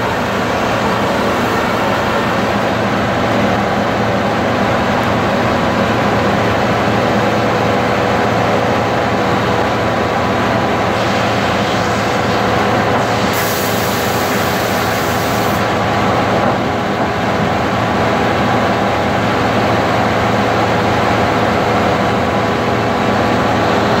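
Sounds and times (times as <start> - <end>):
sawmill machinery running: 0.0 - 24.0
saw cutting log hiss: 10.8 - 15.7.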